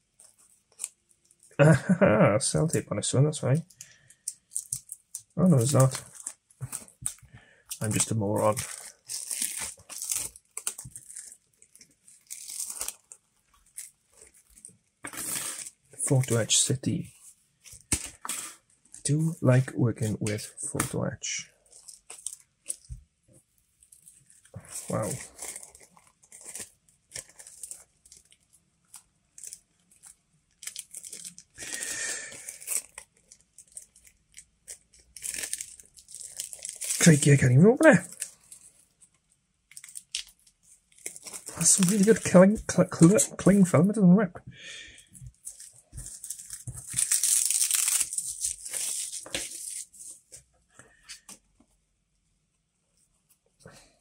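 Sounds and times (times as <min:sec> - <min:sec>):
cling film crinkling: 0:03.7 - 0:16.8, 0:23.8 - 0:43.7, 0:45.2 - 0:50.3.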